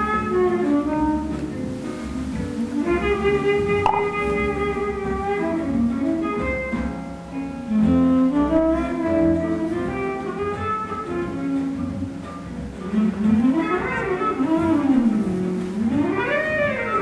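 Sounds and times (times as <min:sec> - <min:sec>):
slow instrumental melody: 0:02.5 - 0:09.6.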